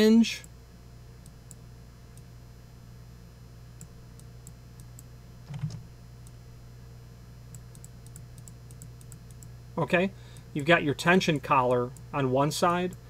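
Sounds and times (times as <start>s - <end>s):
low electrical hum: 0.0s - 13.0s
computer mouse clicks: 7.5s - 9.5s.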